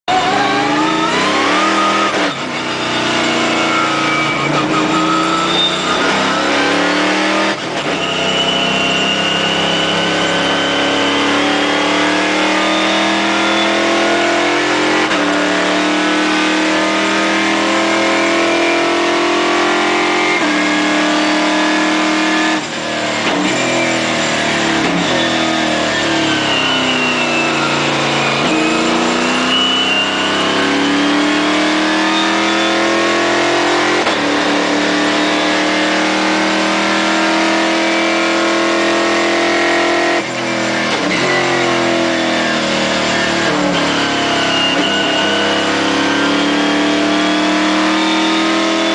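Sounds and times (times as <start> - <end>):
race car engine revving: 0.0 - 48.9.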